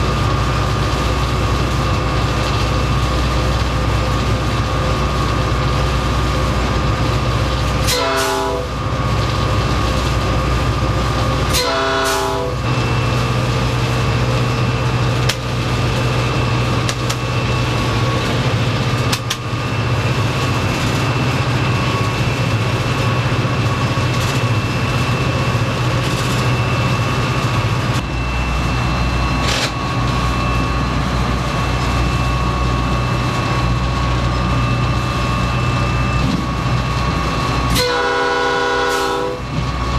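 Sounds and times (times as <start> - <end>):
diesel locomotive drone: 0.0 - 39.9
thin steady whine: 0.0 - 39.9
train horn blasts: 7.8 - 8.8, 11.5 - 12.7, 37.6 - 39.5.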